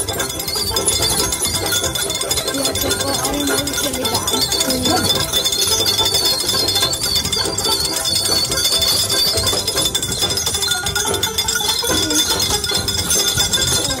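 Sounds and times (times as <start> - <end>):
carriage rattling and clinking: 0.0 - 14.0.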